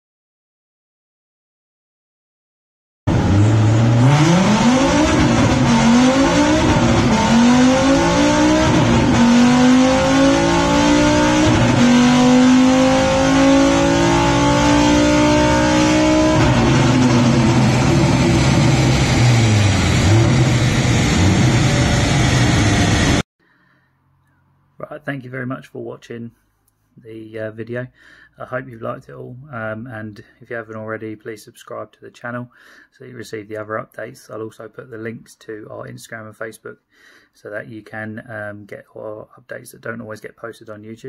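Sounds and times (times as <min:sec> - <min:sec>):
car engine revving: 0:03.1 - 0:23.2.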